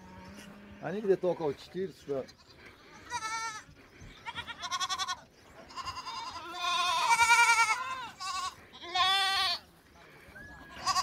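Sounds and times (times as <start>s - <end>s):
lambs and kids bleating: 0.0s - 9.7s, 10.5s - 11.0s.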